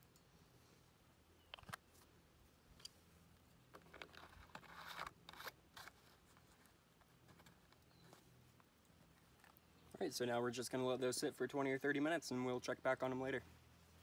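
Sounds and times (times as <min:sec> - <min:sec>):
scraping rustle: 0:03.7 - 0:09.6.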